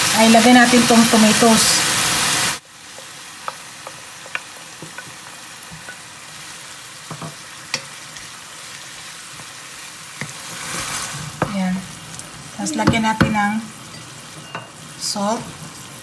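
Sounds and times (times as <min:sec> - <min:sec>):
food sizzling in a frying pan: 0:00.0 - 0:16.0
wooden spatula scraping a pan: 0:10.2 - 0:11.6.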